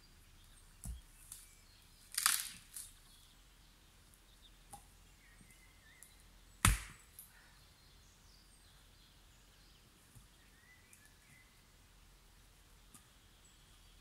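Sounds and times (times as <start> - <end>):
axe splitting log: 6.6 - 7.0.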